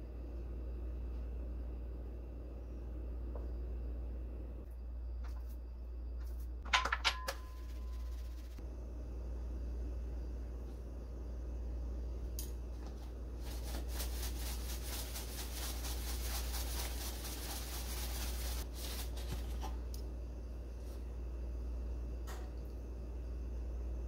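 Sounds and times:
low hum: 0.0 - 24.0
breadcrumbs rustling in plastic tub: 13.4 - 19.6.

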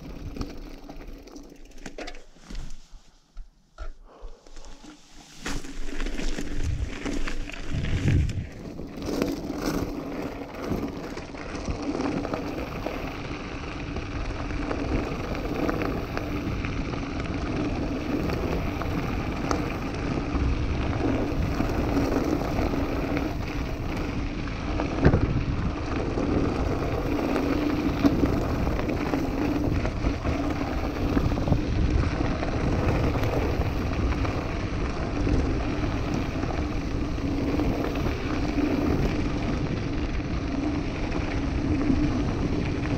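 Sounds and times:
bike tyres crunching on gravel: 0.0 - 3.6, 4.4 - 42.9
bike rattling: 0.0 - 42.9
wind on microphone: 6.5 - 9.1, 24.8 - 42.9.

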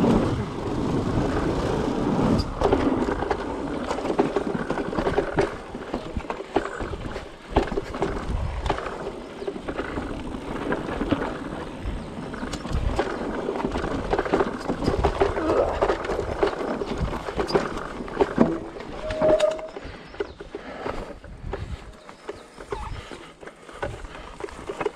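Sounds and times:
wind rumble on microphone: 0.0 - 23.1
bike rattling and knocking: 0.0 - 24.9
bike tyres rolling over dirt: 0.0 - 24.9
short squeak: 19.0 - 19.8.

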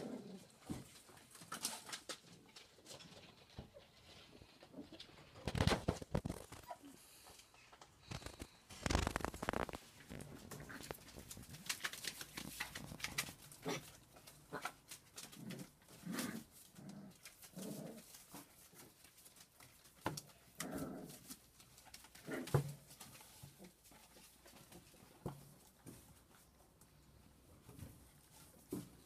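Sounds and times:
small clicks and scuffles: 5.2 - 27.0.

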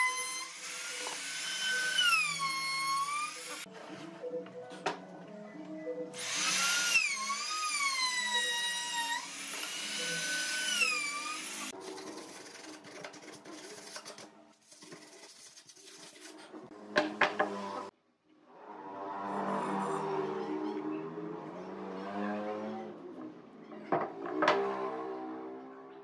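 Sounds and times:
router whining cutting wood: 0.0 - 3.6, 6.2 - 11.7.

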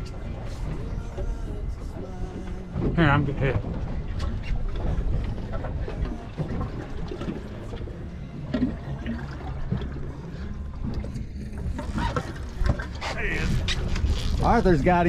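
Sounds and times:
water sloshing against hull: 0.0 - 15.0
wind rumbling on microphone: 10.7 - 15.0.

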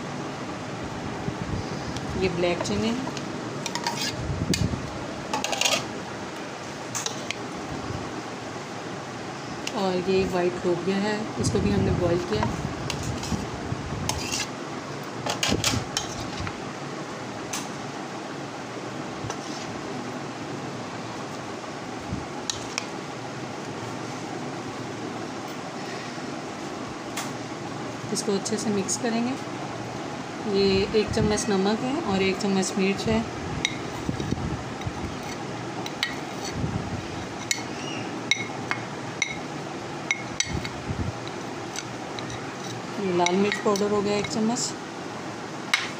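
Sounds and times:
steady background hum: 0.0 - 45.9.

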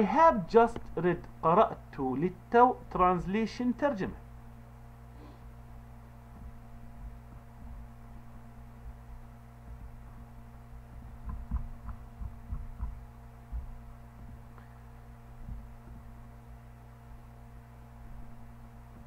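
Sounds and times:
low electrical hum: 0.0 - 19.0
low thuds: 6.3 - 14.6, 15.3 - 16.3.

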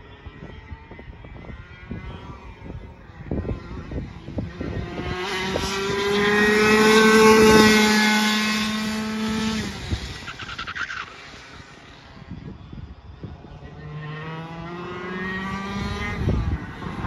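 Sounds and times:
kart engine passing by: 1.5 - 17.0.

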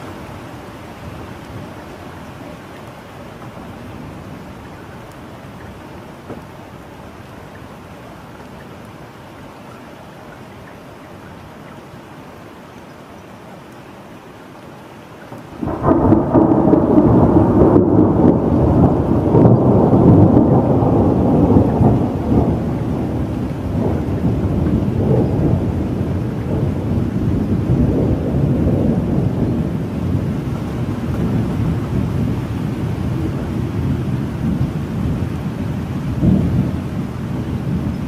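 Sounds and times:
thunder rumbling: 15.6 - 38.0.

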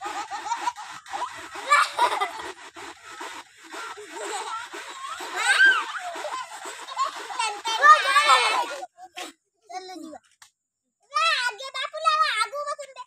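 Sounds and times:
high-pitched squeal of laughter: 0.0 - 3.2, 3.8 - 8.7
children laughing: 0.0 - 9.0.

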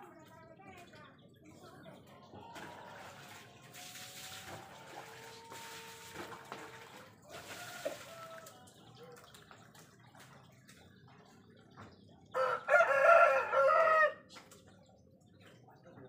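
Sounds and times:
rooster crowing: 12.4 - 14.2.

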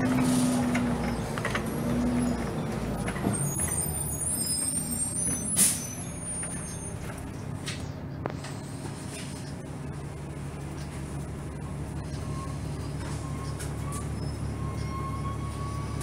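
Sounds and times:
brake squeal: 0.0 - 9.7, 10.6 - 16.0
bus engine droning: 0.0 - 16.0
air brake hiss: 5.5 - 6.0.

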